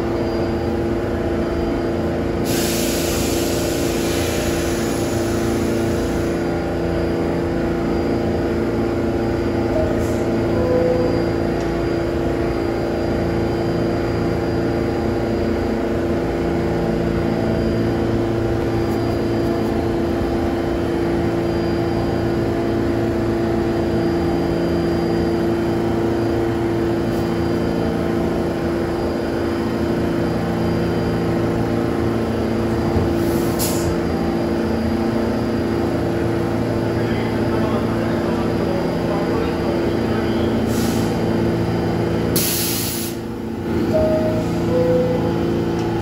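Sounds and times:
train electrical hum: 0.0s - 46.0s.

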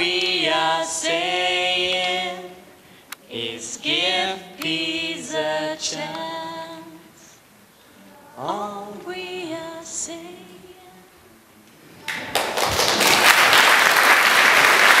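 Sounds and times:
person singing unaccompanied: 3.2s - 7.4s, 8.1s - 11.2s
audience applause: 12.0s - 15.0s.

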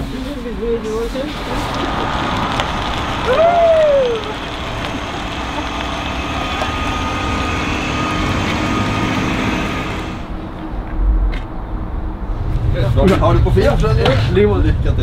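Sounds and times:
electric bus rumbling: 0.0s - 15.0s
faint motor whine: 1.4s - 10.6s
person whooping: 1.8s - 4.4s.

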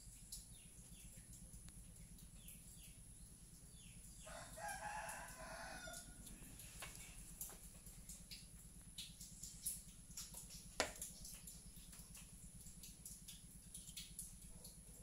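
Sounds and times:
rooster crowing: 4.2s - 6.5s.

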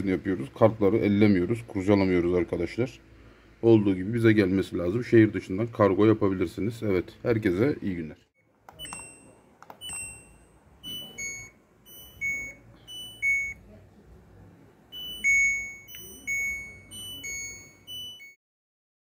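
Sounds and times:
two-note beep: 8.8s - 13.6s, 14.9s - 18.4s.

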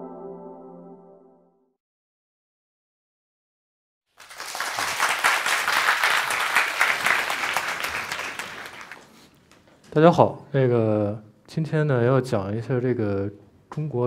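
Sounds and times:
audience applause: 4.2s - 9.3s.

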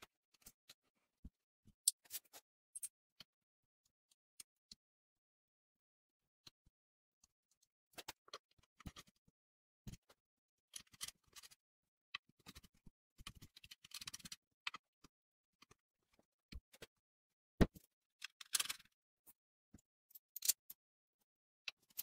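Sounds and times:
metal clicks and scrapes: 18.2s - 19.0s.

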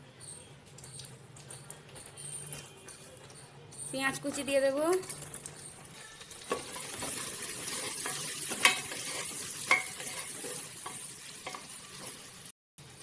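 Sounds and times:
onions sizzling in hot oil: 4.2s - 13.0s.

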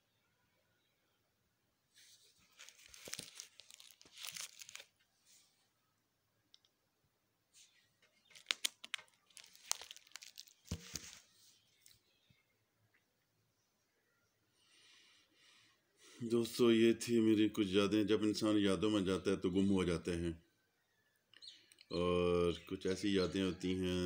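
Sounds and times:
plastic page sleeves crinkling: 2.0s - 5.1s, 7.6s - 12.0s.

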